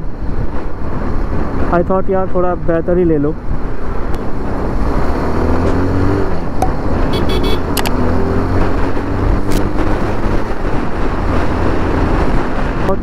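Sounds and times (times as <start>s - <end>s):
road and traffic noise: 0.0s - 13.0s
motorcycle engine running: 6.4s - 10.5s
sharp clicks: 7.7s - 8.0s.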